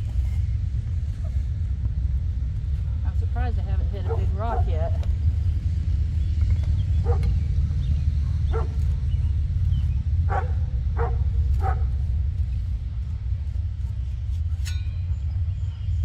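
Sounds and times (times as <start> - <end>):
low rumble: 0.0 - 16.0
dog barking: 4.0 - 4.8, 7.0 - 7.4, 8.2 - 9.1, 10.3 - 12.0.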